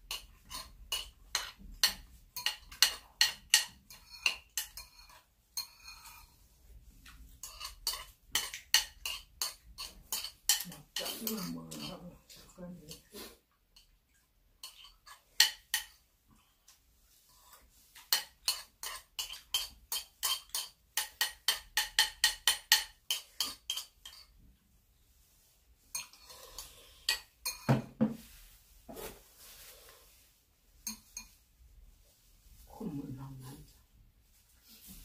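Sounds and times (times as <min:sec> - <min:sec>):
metal spoon scraping ceramic bowl: 0:00.1 - 0:06.4, 0:07.3 - 0:13.3, 0:14.6 - 0:16.0, 0:17.3 - 0:24.4, 0:25.9 - 0:27.7, 0:30.8 - 0:31.4.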